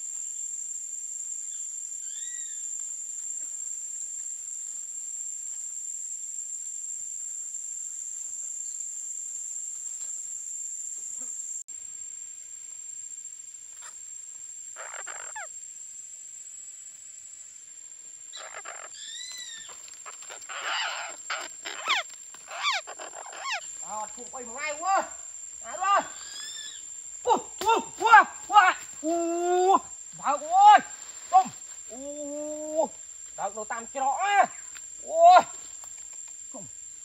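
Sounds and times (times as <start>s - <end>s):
high-pitched insect drone: 0.0s - 37.0s
parakeets squawking: 14.8s - 15.5s, 18.4s - 23.6s.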